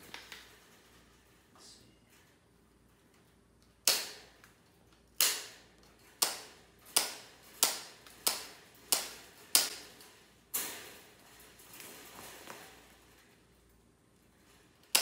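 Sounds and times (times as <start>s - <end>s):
tin snips cutting wire: 5.2s - 5.6s.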